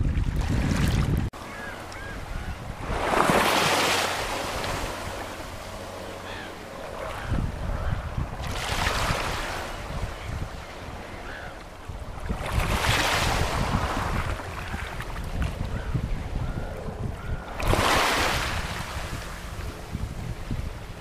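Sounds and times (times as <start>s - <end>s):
waves washing over pebbles: 2.8s - 5.0s.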